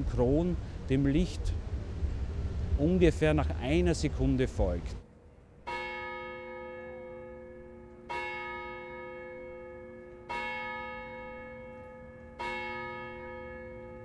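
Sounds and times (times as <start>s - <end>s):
clock tower bell striking: 5.6s - 14.0s.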